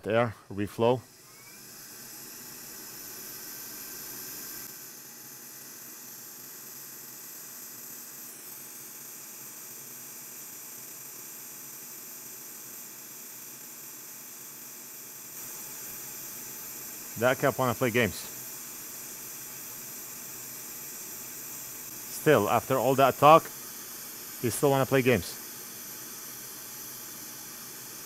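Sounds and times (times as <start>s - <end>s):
hot air nozzle hissing: 15.3s - 28.0s.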